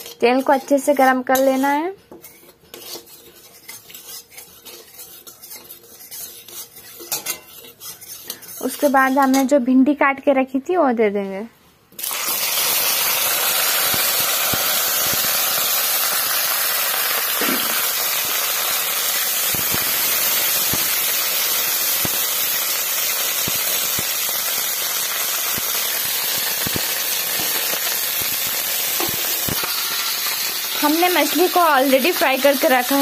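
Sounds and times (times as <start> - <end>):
metal spatula stirring: 0.0 - 9.6
okra sizzling in hot oil: 0.0 - 9.6, 11.9 - 33.0.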